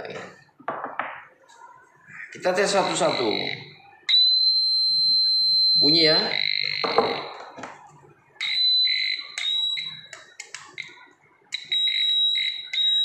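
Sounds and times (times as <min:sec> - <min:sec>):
voltage tester beeping: 0:02.7 - 0:07.6, 0:08.4 - 0:13.0.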